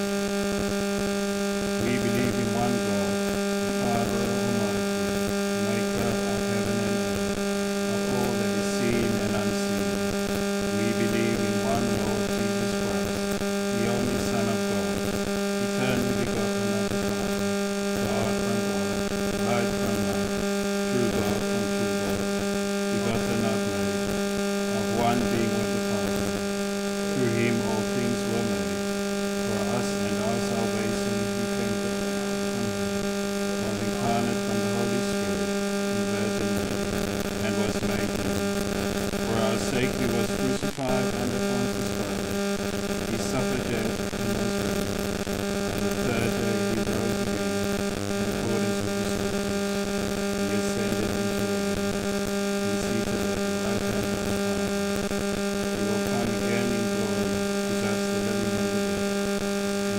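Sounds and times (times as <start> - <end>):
electrical hum with buzz: 0.0 - 59.9
man speaking faintly: 1.8 - 4.9, 5.6 - 7.2, 7.9 - 9.9, 10.7 - 13.2, 13.8 - 17.4, 18.0 - 20.3, 20.9 - 22.2, 22.9 - 24.0, 24.7 - 26.3, 27.2 - 28.7, 29.5 - 32.9, 33.6 - 38.4, 39.2 - 42.3, 43.1 - 44.8, 45.9 - 47.4, 48.2 - 49.2, 50.4 - 51.5, 52.6 - 54.3, 55.8 - 58.8.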